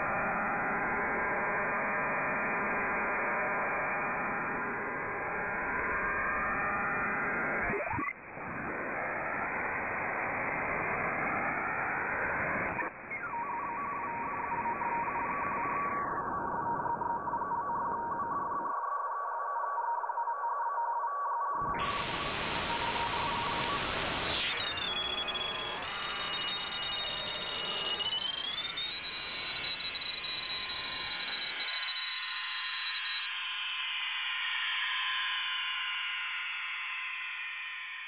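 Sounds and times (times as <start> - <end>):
steady broken radio tone: 6.2 - 19.0, 21.6 - 31.6
whistling tuning sweeps: 13.1 - 18.3, 21.8 - 33.7
shortwave radio static: 21.6 - 28.0.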